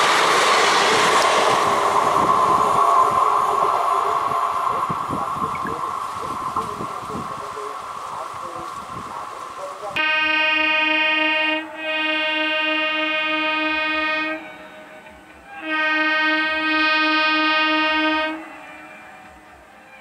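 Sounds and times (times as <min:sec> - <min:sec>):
train horn blasts: 0:09.9 - 0:20.0.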